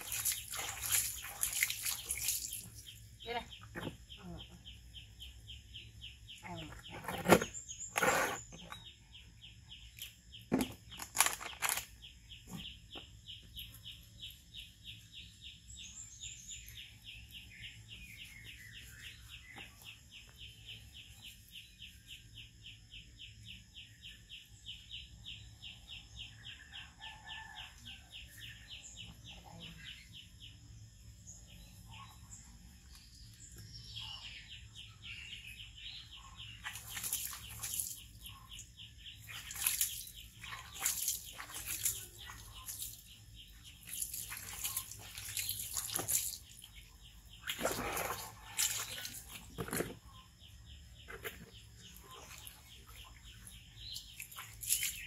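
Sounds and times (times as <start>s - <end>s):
water splashing as poured: 0.0s - 2.8s, 39.3s - 43.0s, 43.7s - 46.7s, 47.4s - 49.9s
bird calls: 31.3s - 55.0s.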